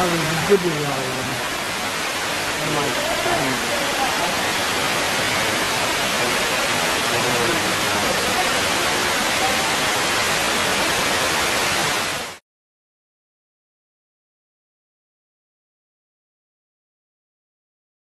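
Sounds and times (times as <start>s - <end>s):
indoor waterfall rushing: 0.0s - 12.4s.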